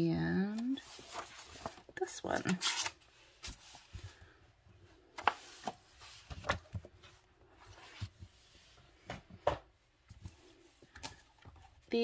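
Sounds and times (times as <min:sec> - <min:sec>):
pages rustling: 0:00.6 - 0:04.4.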